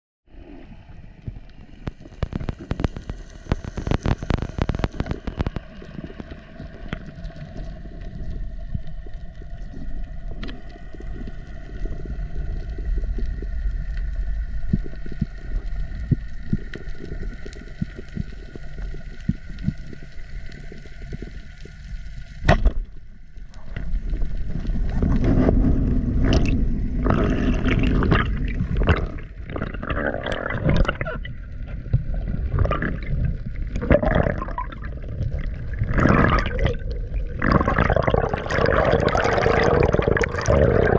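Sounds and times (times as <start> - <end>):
faint hum: 0.3 - 40.9
underwater clicks: 1.4 - 11.1, 12.9 - 40.9
rushing churning water: 32.3 - 40.9.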